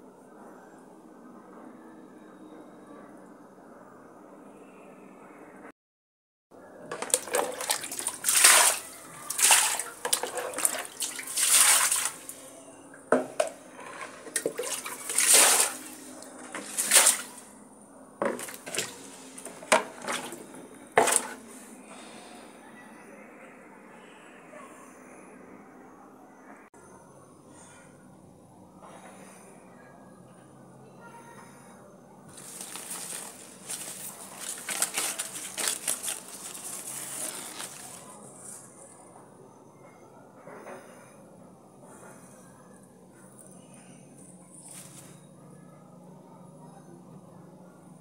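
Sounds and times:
water splashing on plants and tiles: 0:06.9 - 0:12.4, 0:14.0 - 0:17.5, 0:18.2 - 0:20.4, 0:21.0 - 0:21.4, 0:32.3 - 0:38.1
leaves rustling and crinkling: 0:07.0 - 0:12.4, 0:14.0 - 0:17.5, 0:32.3 - 0:38.7, 0:44.6 - 0:45.2.

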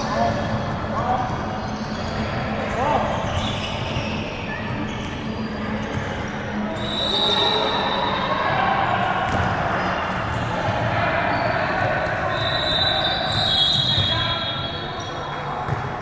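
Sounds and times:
indoor hall noise: 0:00.0 - 0:16.0
ball bouncing on hard court: 0:09.2 - 0:10.9, 0:15.6 - 0:16.0.

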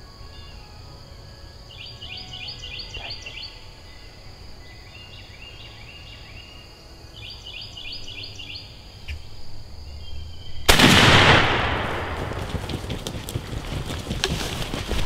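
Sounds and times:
high chirping trills: 0:00.0 - 0:11.0
shotgun shot: 0:10.7 - 0:13.1.

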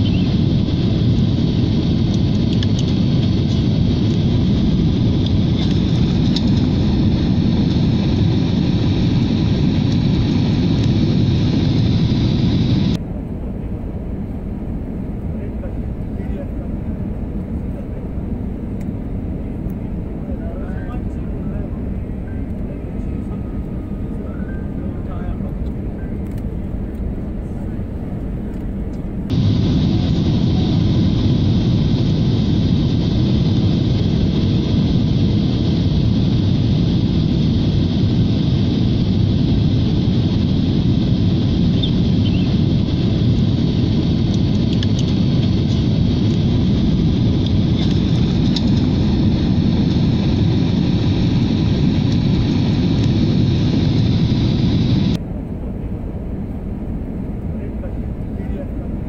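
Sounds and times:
jet engines and rushing air: 0:00.0 - 0:59.0.

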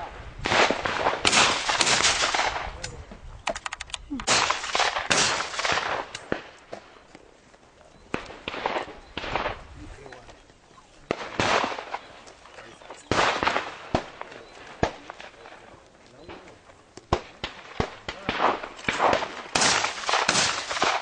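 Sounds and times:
shotgun shots with echo: 0:00.4 - 0:02.8, 0:04.2 - 0:06.6, 0:11.1 - 0:12.2, 0:13.1 - 0:15.5, 0:17.1 - 0:21.0
sharp cracks: 0:00.4 - 0:07.0, 0:08.1 - 0:10.2, 0:11.1 - 0:21.0.

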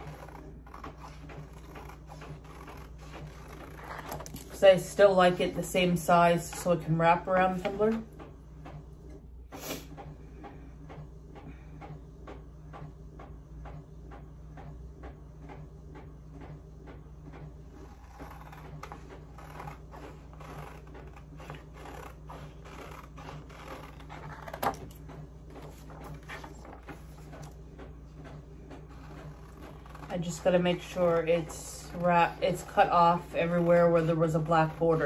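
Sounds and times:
scissors snipping paper: 0:00.0 - 0:04.5, 0:17.8 - 0:25.0, 0:28.9 - 0:35.0.

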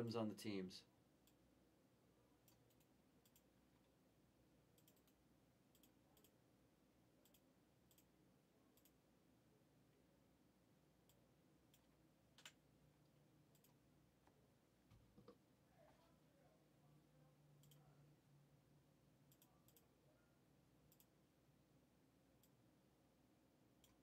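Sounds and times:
faint computer mouse clicks: 0:07.2 - 0:08.1, 0:19.3 - 0:19.9, 0:20.9 - 0:21.1, 0:23.8 - 0:24.0.

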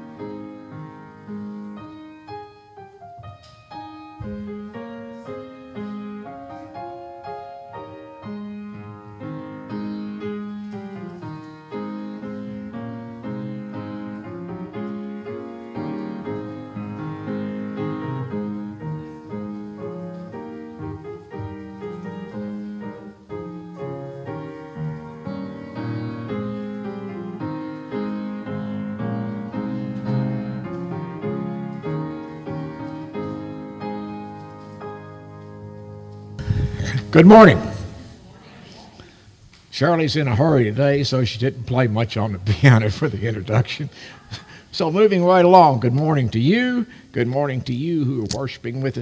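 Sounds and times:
solo upright piano: 0:00.0 - 0:38.0.

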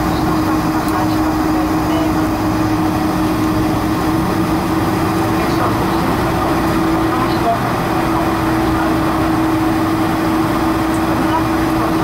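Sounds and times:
jet engines idling hum: 0:00.0 - 0:12.0
wheels rumbling on concrete: 0:00.0 - 0:12.0.

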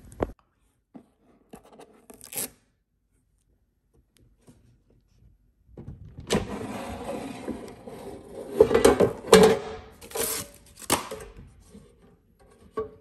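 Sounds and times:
packing tape ripping off: 0:02.1 - 0:02.6, 0:10.0 - 0:11.1
basket drawer sliding scrape: 0:06.4 - 0:09.3.

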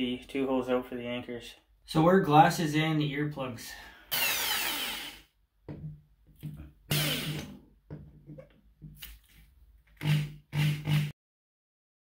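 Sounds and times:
electric drill drilling tile: 0:04.1 - 0:05.3, 0:06.9 - 0:07.6, 0:10.0 - 0:11.1.

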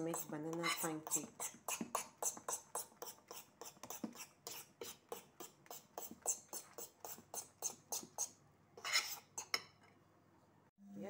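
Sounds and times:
spoon scraping batter in bowl: 0:00.0 - 0:10.0.

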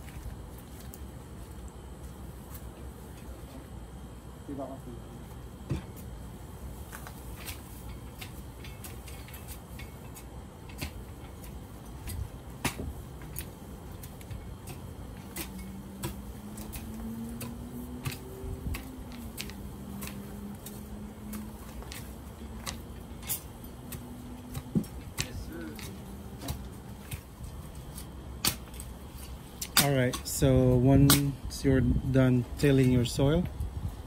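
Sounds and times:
tool scraping soil: 0:13.3 - 0:29.4.

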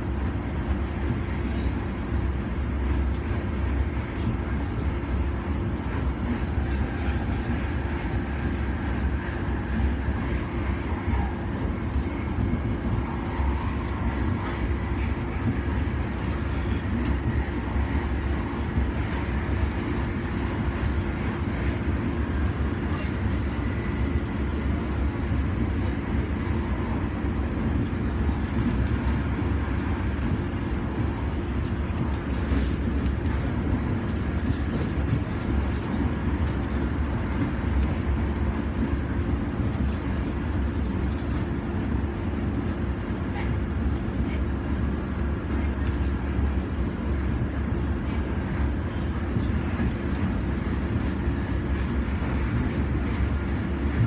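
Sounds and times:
constant hum: 0:00.0 - 0:54.0
train wheels rumbling on rails: 0:00.0 - 0:54.0.

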